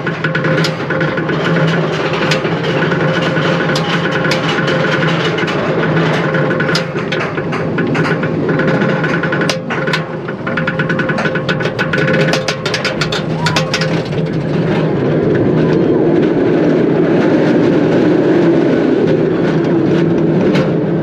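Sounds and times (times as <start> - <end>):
lift chain clicking and clanking: 0.0 - 15.8
rumble of wheels: 0.0 - 21.0
rushing wind: 0.0 - 21.0.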